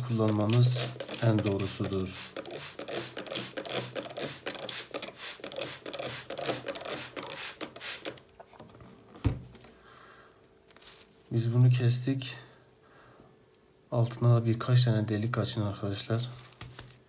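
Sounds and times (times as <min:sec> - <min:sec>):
spray bottle squirting water: 0:00.0 - 0:08.2.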